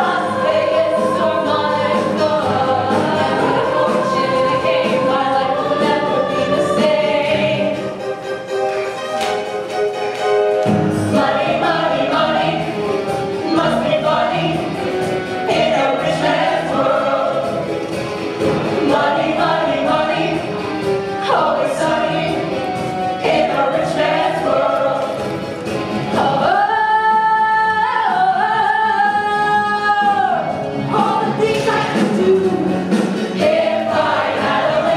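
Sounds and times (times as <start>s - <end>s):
ensemble singing: 0.0s - 8.6s
musical accompaniment with beat: 0.0s - 34.9s.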